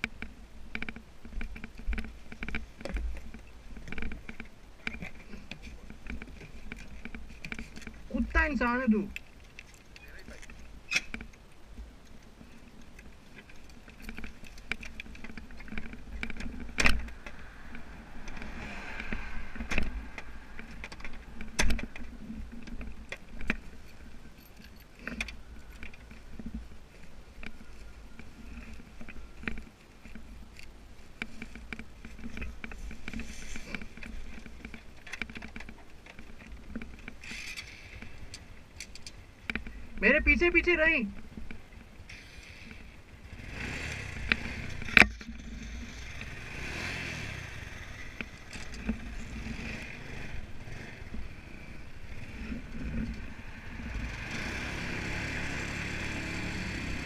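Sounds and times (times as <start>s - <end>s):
motorbike running: 0.0s - 8.9s, 12.4s - 24.4s, 39.5s - 57.0s
rattling and knocks: 13.4s - 26.6s.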